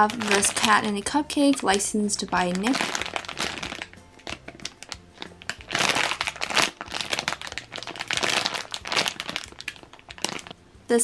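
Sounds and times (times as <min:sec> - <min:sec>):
plastic bag crinkling: 0:00.0 - 0:10.6.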